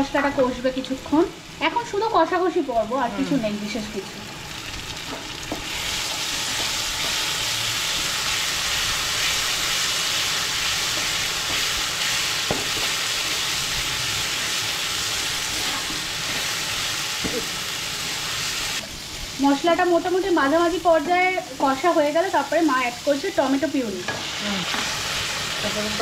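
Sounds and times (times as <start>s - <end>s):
onions sizzling in hot oil: 0.0s - 26.0s
spatula scraping a wok: 5.5s - 14.3s.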